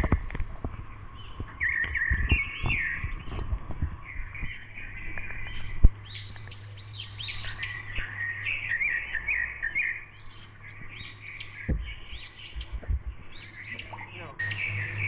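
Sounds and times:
birds chirping: 0:00.0 - 0:15.0
steady low hum: 0:00.0 - 0:15.0.

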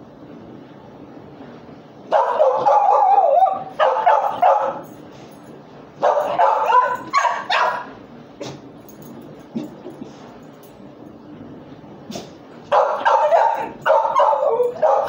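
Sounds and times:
dog yelping barks: 0:02.1 - 0:04.8, 0:06.0 - 0:08.0, 0:12.7 - 0:15.0
dog whining: 0:02.2 - 0:04.7, 0:06.1 - 0:07.8, 0:12.2 - 0:15.0.

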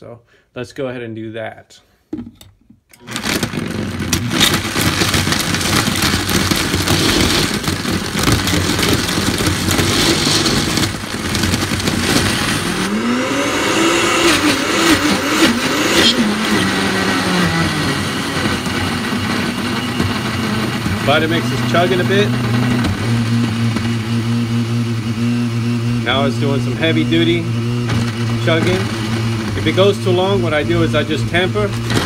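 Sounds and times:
ice cubes clicking in blender: 0:03.0 - 0:12.9
blender motor whirring: 0:03.0 - 0:32.0.

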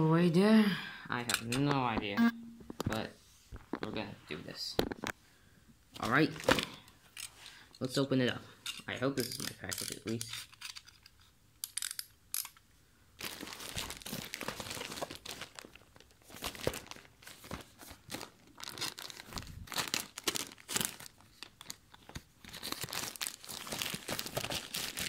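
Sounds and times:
plastic mailer bag crinkling: 0:13.2 - 0:25.0.

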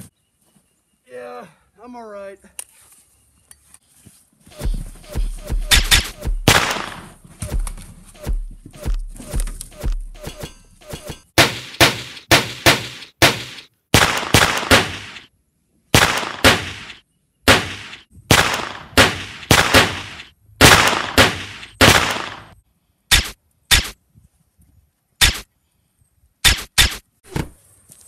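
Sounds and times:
sharp rifle shots: 0:04.6 - 0:07.6, 0:08.2 - 0:15.3, 0:15.9 - 0:24.0.

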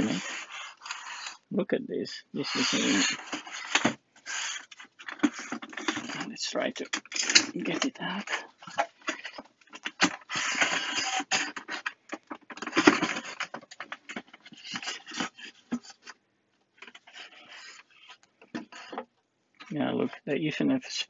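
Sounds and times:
polystyrene foam scraping: 0:00.0 - 0:01.5, 0:02.4 - 0:16.0.

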